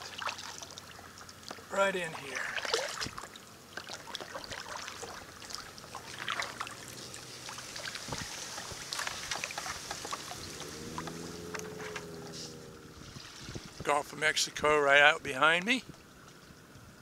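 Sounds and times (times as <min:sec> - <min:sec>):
water dripping: 0:00.0 - 0:13.6
paddle splashes: 0:00.0 - 0:13.9.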